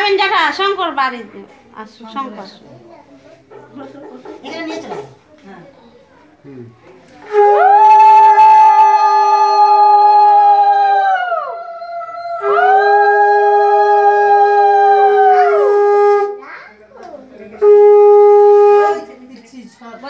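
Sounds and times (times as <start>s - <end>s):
voices: 0.0s - 20.0s
conch shell blasts: 7.2s - 9.0s, 17.6s - 19.1s.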